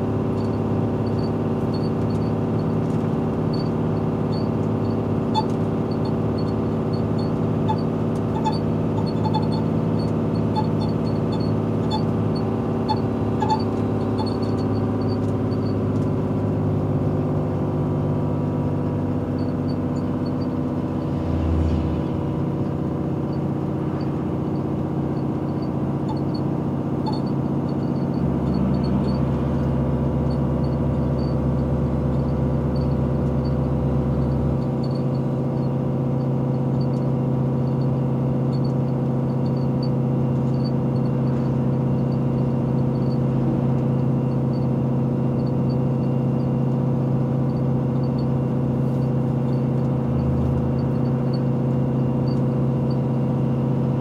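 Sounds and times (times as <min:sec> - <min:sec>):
truck diesel engine hum: 0:00.0 - 0:54.0
deeper drone: 0:03.3 - 0:16.3, 0:18.9 - 0:35.4.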